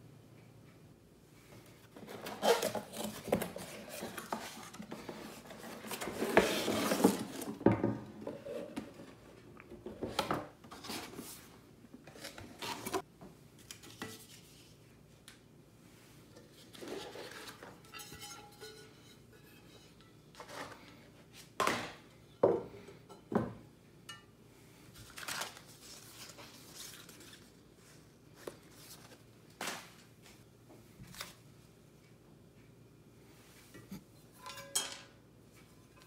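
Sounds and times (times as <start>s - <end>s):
cardboard box scraping and rustling: 2.0s - 7.6s.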